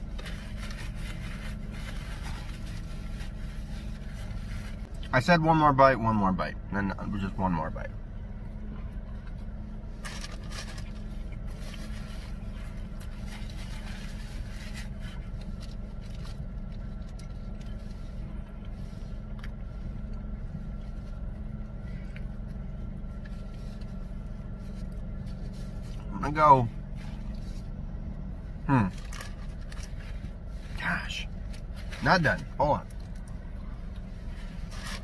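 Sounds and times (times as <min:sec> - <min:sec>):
paper napkin rustling: 0:00.0 - 0:04.9, 0:10.0 - 0:18.2, 0:28.8 - 0:35.0
car cabin hum: 0:00.0 - 0:35.0.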